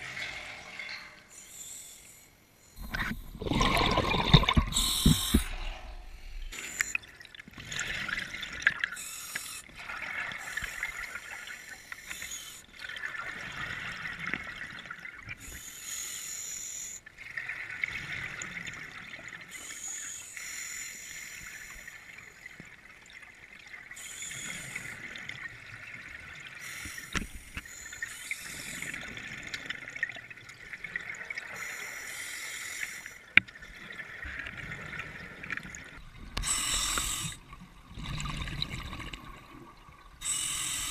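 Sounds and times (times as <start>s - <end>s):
scuba divers breathing underwater: 1.3s - 12.7s, 26.6s - 29.4s, 36.1s - 39.2s, 40.2s - 40.9s
exhaled bubbles rushing: 2.8s - 7.0s, 34.1s - 40.2s.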